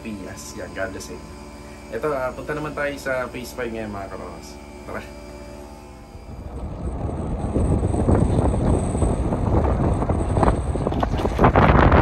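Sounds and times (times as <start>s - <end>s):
wind buffeting microphone: 5.9s - 12.0s.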